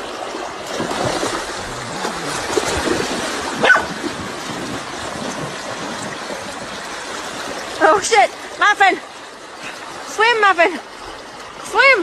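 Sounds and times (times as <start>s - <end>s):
creek water rushing: 0.0s - 12.0s
dog yelping: 3.6s - 3.9s.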